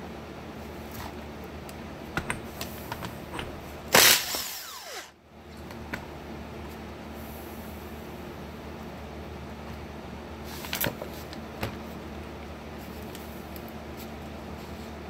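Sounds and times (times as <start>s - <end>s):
cordless power tool whirring: 3.9s - 5.2s.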